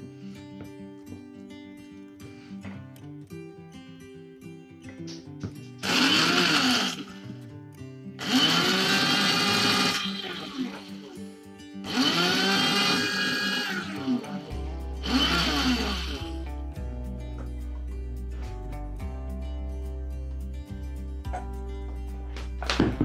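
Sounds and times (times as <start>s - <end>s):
acoustic guitar music: 0.0s - 23.0s
electric coffee grinder whirring: 5.8s - 7.2s, 8.2s - 11.2s, 11.9s - 16.4s.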